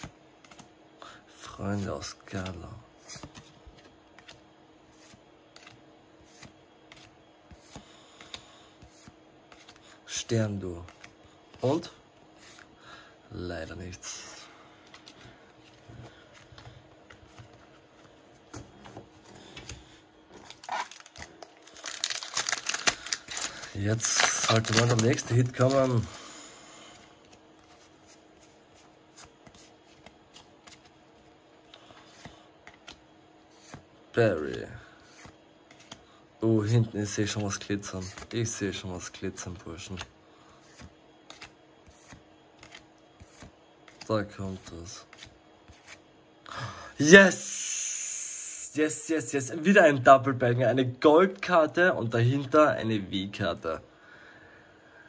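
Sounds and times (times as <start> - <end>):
cards flicking and rustling: 0.0 - 0.7, 2.4 - 9.8, 14.8 - 26.2, 26.9 - 31.4, 32.0 - 36.0, 36.7 - 38.6, 39.8 - 46.0.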